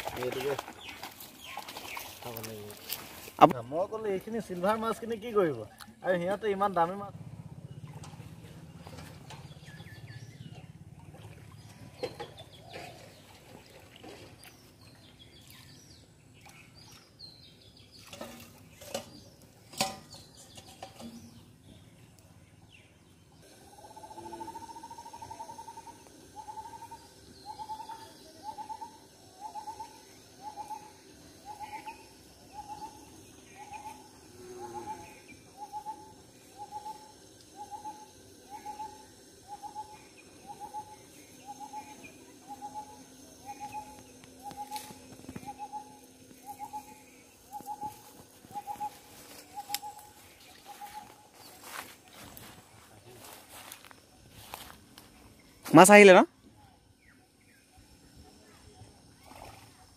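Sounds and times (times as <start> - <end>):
bird hooting: 23.4 - 52.6.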